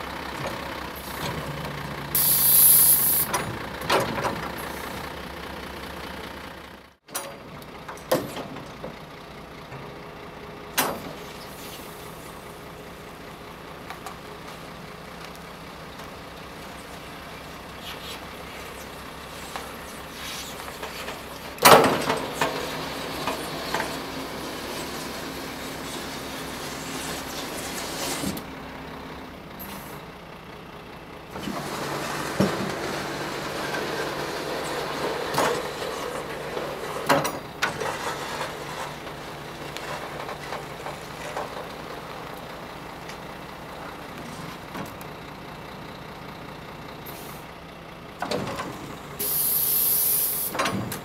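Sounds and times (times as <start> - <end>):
diesel truck engine idling: 0.0 - 50.9
hydraulic hissing and clanking: 2.1 - 3.5, 48.2 - 51.0
snowplow blade clunks: 3.2 - 5.1, 7.1 - 10.1, 10.7 - 17.7, 18.3 - 30.1, 31.2 - 49.4, 50.3 - 51.0.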